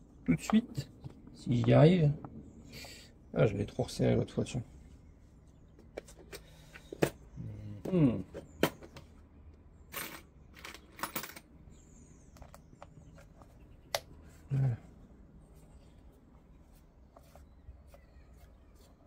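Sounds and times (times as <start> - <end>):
person grunting: 14.5 - 14.9.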